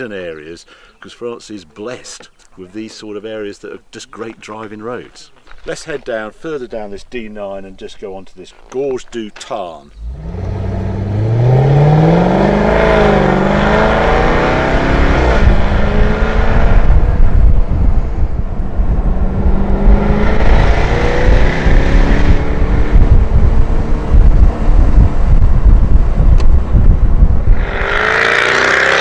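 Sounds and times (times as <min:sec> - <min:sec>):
wind and road noise: 0:00.0 - 0:29.0
car engine accelerating: 0:10.0 - 0:29.0.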